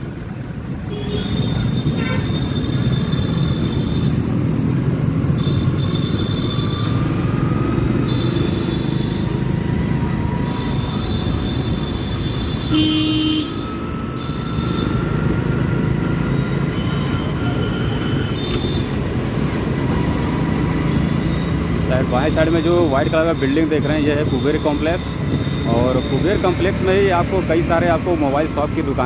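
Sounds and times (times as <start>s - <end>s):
city street traffic: 0.0s - 29.0s
motorcycle engine and road rumble: 0.0s - 29.0s
vehicle horn honking: 0.9s - 4.0s, 10.4s - 19.0s.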